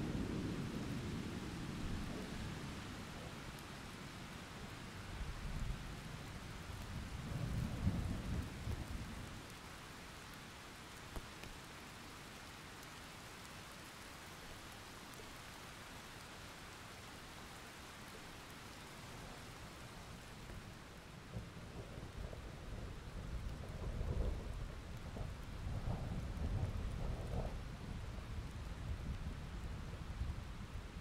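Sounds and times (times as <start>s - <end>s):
low rumble of thunder: 0.0s - 3.9s, 4.5s - 9.5s, 19.2s - 31.0s
steady rain: 0.0s - 31.0s.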